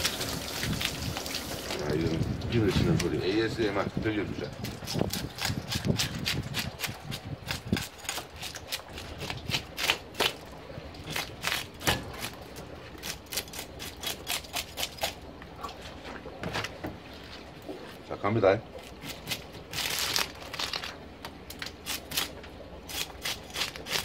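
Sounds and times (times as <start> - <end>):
fish scaler scraping scales: 11.1 - 15.8.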